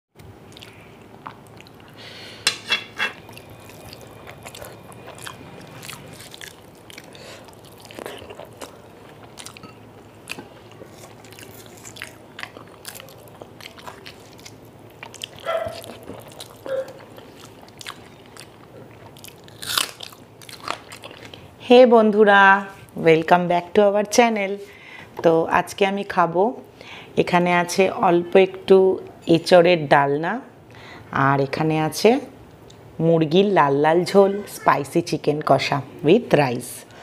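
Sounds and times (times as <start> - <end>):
chewing: 0.5 - 2.0, 3.2 - 21.5.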